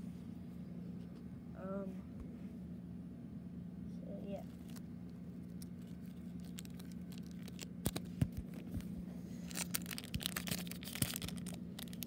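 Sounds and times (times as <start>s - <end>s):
foil wrapper crinkling: 4.5s - 8.8s, 9.4s - 12.0s.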